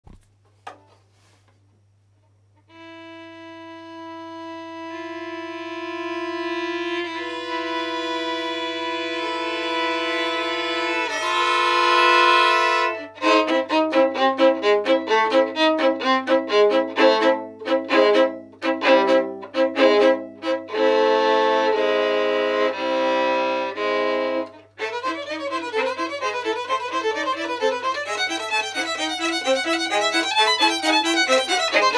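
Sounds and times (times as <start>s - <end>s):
violin duet: 2.6s - 31.9s.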